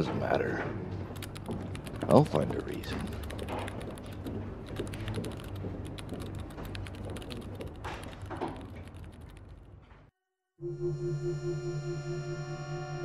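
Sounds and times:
steady low hum: 0.0s - 10.0s
rapid mechanical clicking: 1.1s - 9.7s.

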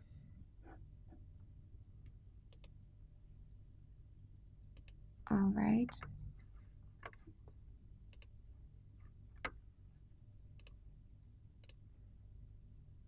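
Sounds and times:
low steady hum: 0.0s - 13.0s
computer mouse clicks: 2.5s - 2.8s, 4.7s - 5.0s, 8.1s - 8.4s, 10.6s - 10.8s, 11.6s - 11.8s.

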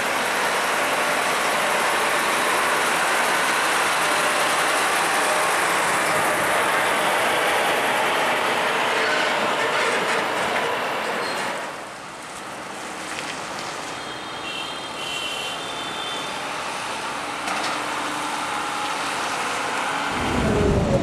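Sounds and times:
heavy truck driving past: 19.8s - 21.0s.

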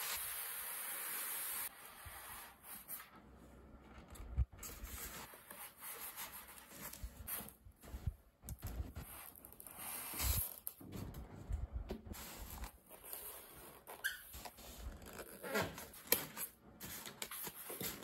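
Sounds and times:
styrofoam scraping against cardboard: 8.9s - 10.6s.

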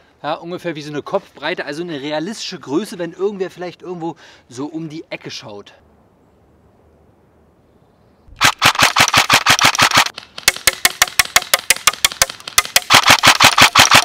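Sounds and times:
airsoft rifle rapid fire: 8.4s - 14.0s.

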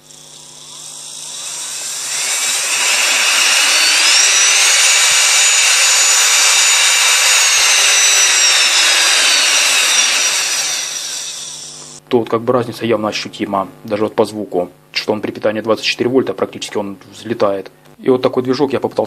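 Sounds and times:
electric motor whine: 0.0s - 12.0s
man speaking: 12.1s - 19.0s.

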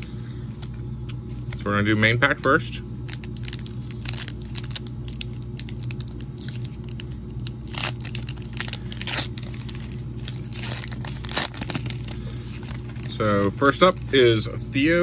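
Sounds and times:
plastic wrapper tearing and crinkling: 3.0s - 14.2s.

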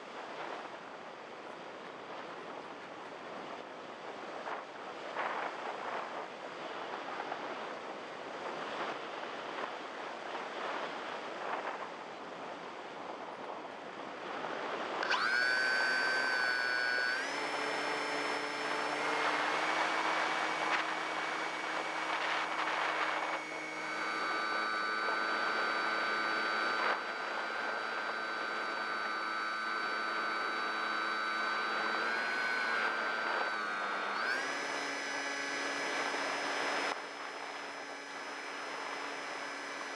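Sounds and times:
wind rushing over camera: 0.0s - 39.9s
electric motor whine: 14.4s - 39.9s.

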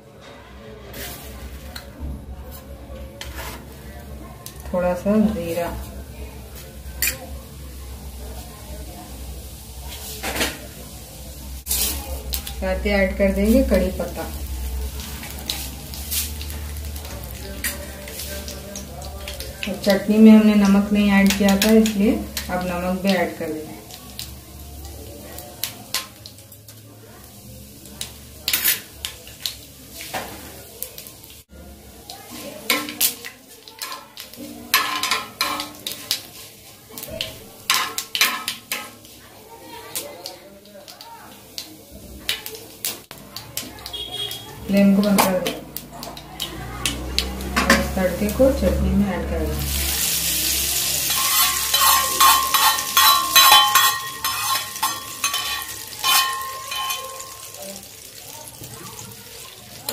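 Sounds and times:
metal spoon scraping a pan: 0.2s - 1.8s, 2.5s - 3.8s, 6.9s - 7.3s, 11.7s - 12.4s, 28.4s - 30.4s, 32.3s - 39.2s, 49.6s - 57.6s
spices sizzling in hot oil: 0.8s - 59.9s
spoon clinking against ceramic bowl: 51.1s - 57.6s.

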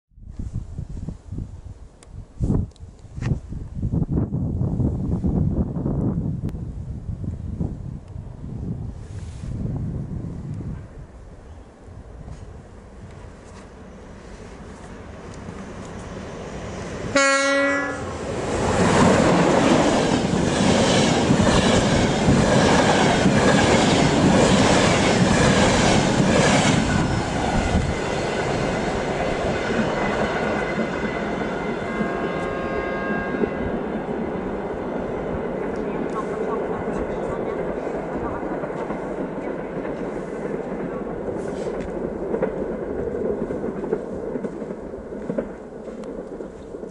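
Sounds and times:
train rushing past: 4.8s - 46.9s
train horn blast: 17.1s - 18.2s, 31.8s - 33.7s.

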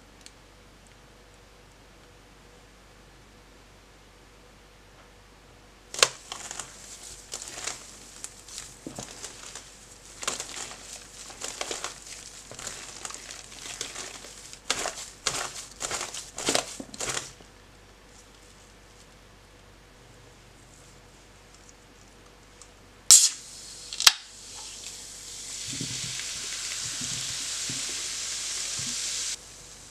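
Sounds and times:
wet squelches of squeezed mash: 6.0s - 17.4s.

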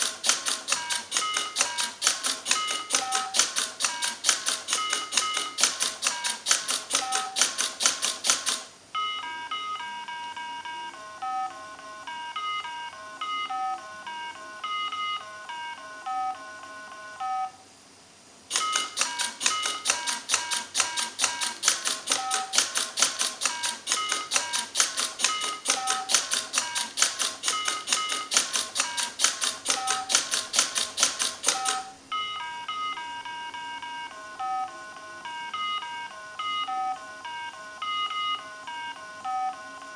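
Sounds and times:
mechanism clicking rapidly: 0.0s - 8.7s, 18.5s - 32.0s
electronic game beeps: 2.5s - 4.2s, 21.0s - 22.7s, 29.7s - 30.2s.

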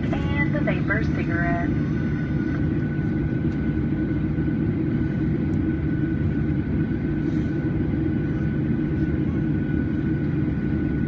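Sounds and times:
jet engines low rumble: 0.0s - 11.0s.

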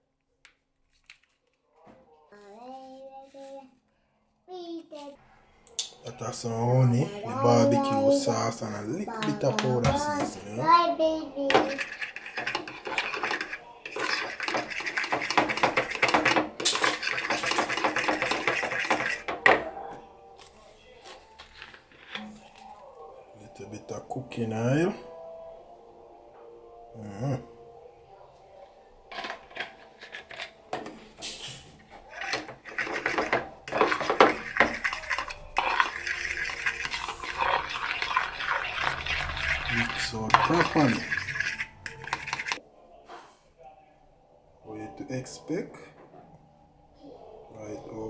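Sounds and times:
fork whisking in plastic bowl: 11.5s - 19.6s, 32.1s - 42.6s.

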